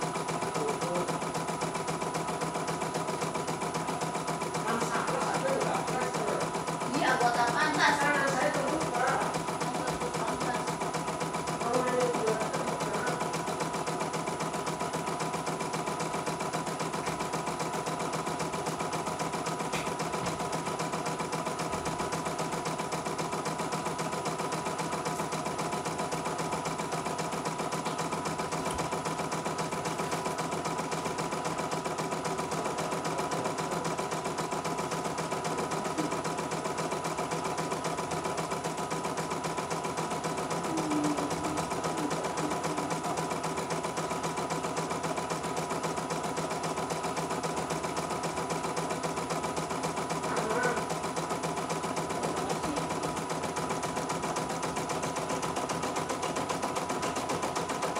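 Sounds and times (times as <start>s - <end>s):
embroidery machine stitching: 0.0s - 57.9s.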